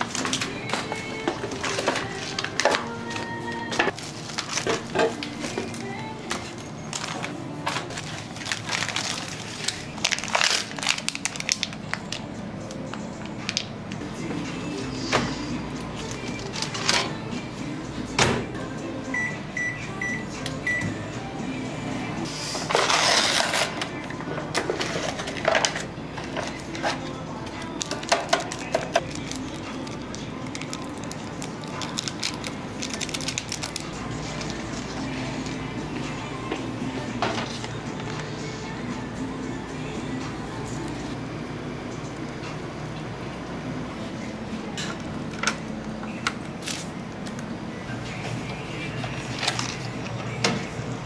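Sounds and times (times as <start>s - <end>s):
plastic packaging crinkling: 3.9s - 5.5s, 6.9s - 12.3s, 27.6s - 34.9s.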